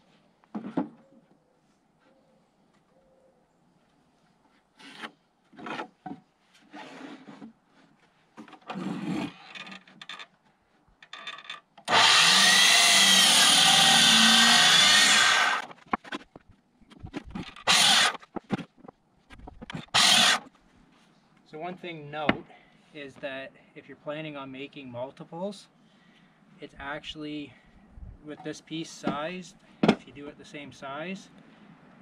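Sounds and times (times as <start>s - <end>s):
knocks and scrapes: 4.5s - 10.3s, 15.6s - 20.5s
miter saw cutting wood: 11.9s - 15.8s, 17.4s - 18.2s, 19.7s - 20.5s.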